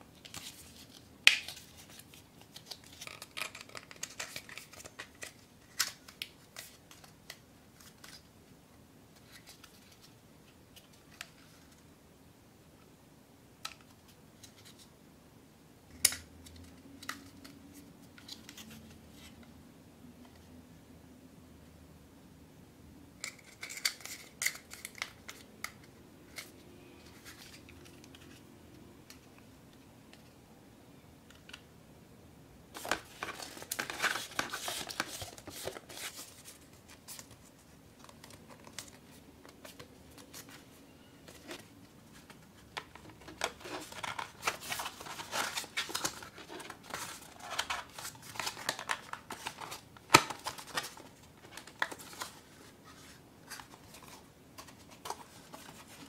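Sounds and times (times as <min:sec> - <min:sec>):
cardstock crackling and creasing: 0:32.8 - 0:37.4.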